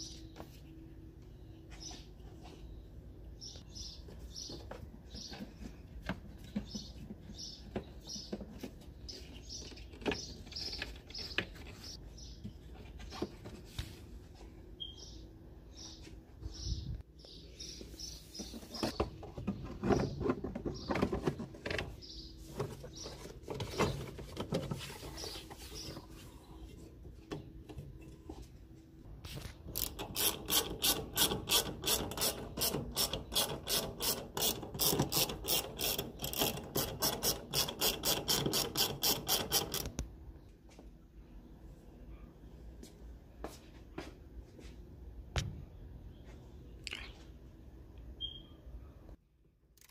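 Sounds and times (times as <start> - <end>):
ratchet wrench clicking: 29.8 - 39.9.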